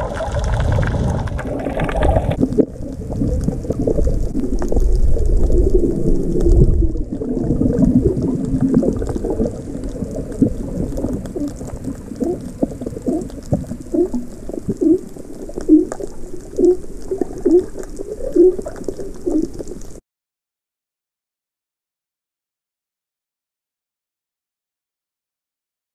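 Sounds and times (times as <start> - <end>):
underwater rumble: 0.0 - 20.0.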